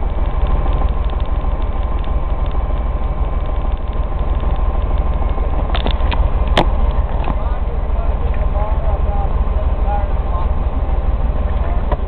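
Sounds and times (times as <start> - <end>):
sharp clicks or rattles: 0.0 - 7.4
truck diesel engine idling: 0.0 - 12.0.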